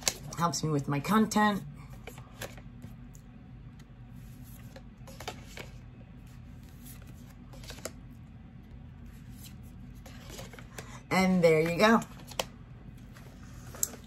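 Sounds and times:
cards tapping and sliding: 0:06.5 - 0:08.0.

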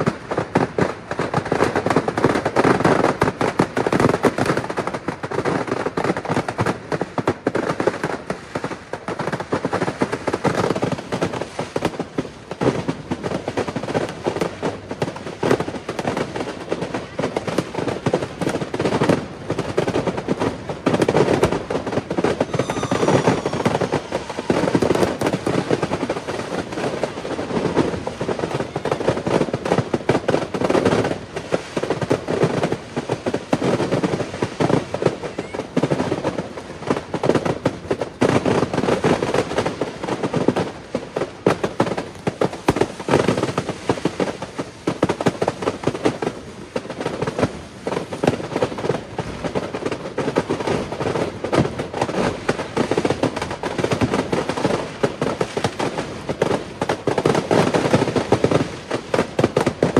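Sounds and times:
firework bangs and crackling: 0:00.0 - 0:59.9
firework whistle: 0:21.4 - 0:27.1.

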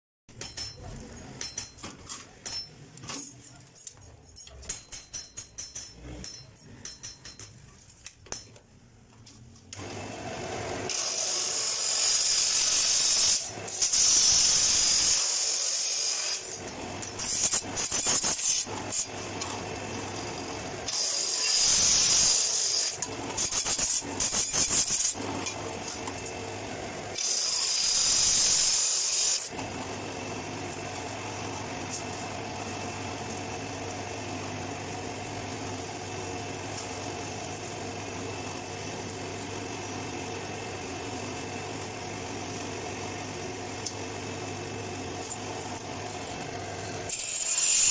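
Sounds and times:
saw disc screeching through steel: 0:10.9 - 0:25.6, 0:27.1 - 0:29.5, 0:47.1 - 0:47.9.

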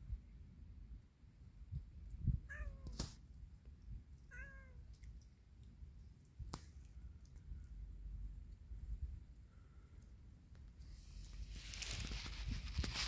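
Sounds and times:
cat meowing: 0:02.5 - 0:03.0, 0:04.3 - 0:04.8.

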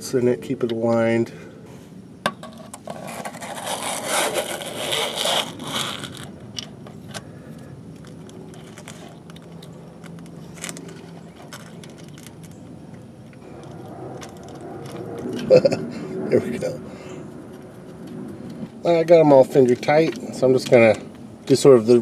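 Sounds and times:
metal screen scraping: 0:02.4 - 0:06.4.

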